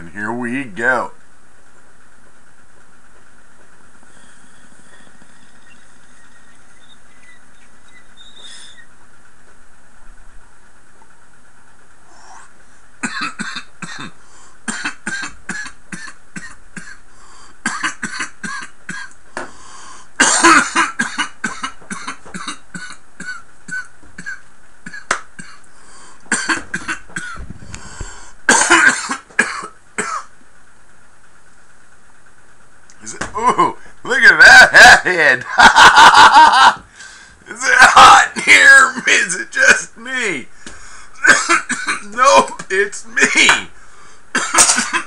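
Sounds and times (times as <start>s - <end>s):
man coughing hard: 13.0s - 17.0s, 17.6s - 19.1s, 20.2s - 25.6s, 26.3s - 27.4s, 28.5s - 30.3s, 34.4s - 36.8s, 41.2s - 43.6s, 44.4s - 45.0s.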